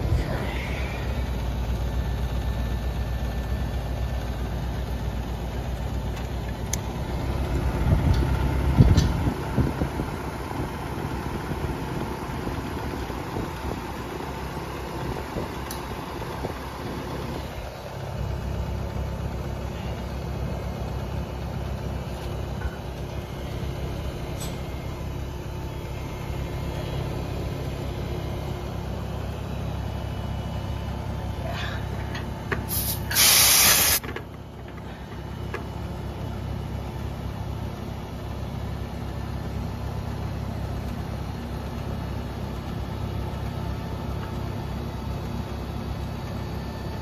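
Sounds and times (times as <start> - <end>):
air conditioning unit running: 0.0 - 47.0
loud gas hiss: 32.7 - 34.1.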